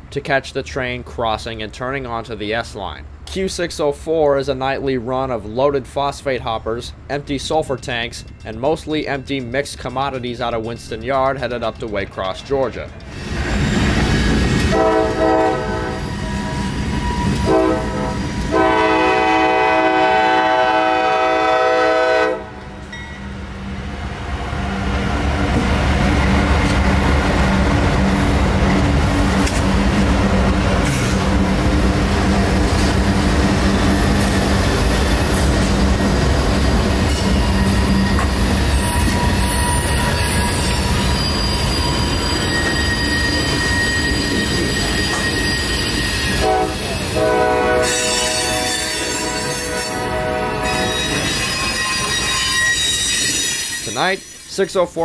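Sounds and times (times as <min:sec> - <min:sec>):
diesel locomotive rumble: 0:04.0 - 0:51.3
train wheel squeal: 0:13.1 - 0:18.7, 0:33.6 - 0:54.9
locomotive horn blasts: 0:14.7 - 0:16.1, 0:17.2 - 0:22.8, 0:46.3 - 0:52.9.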